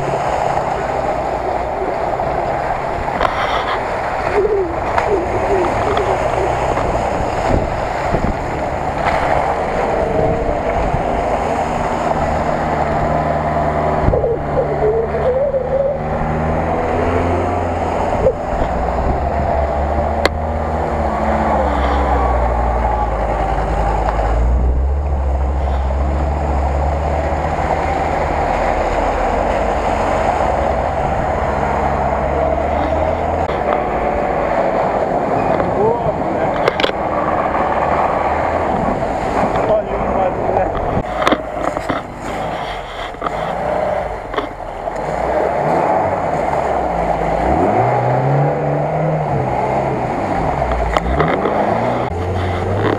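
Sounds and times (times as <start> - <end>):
off-road vehicle engines: 0.0 - 52.9.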